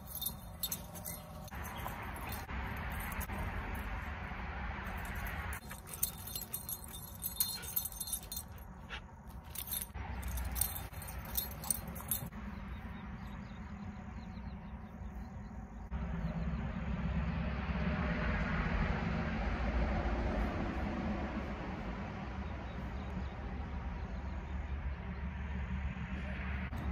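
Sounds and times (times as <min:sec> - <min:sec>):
dog collar tags jingling: 0:00.0 - 0:04.1, 0:04.8 - 0:12.4.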